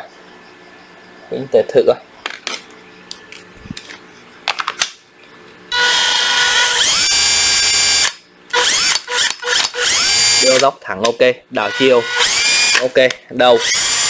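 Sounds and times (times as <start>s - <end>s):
cordless drill motor whine: 5.7s - 10.6s, 11.6s - 14.0s.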